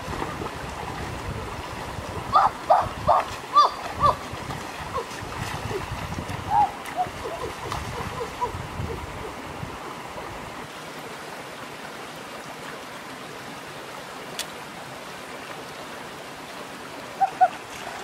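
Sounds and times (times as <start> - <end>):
water splashing: 0.0 - 10.9, 17.1 - 18.0
river running over rocks: 0.0 - 18.0.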